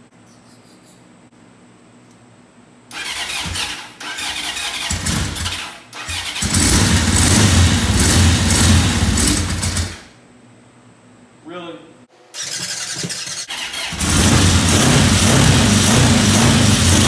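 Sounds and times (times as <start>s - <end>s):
motorcycle engine cranking: 2.9s - 10.1s, 12.4s - 17.0s.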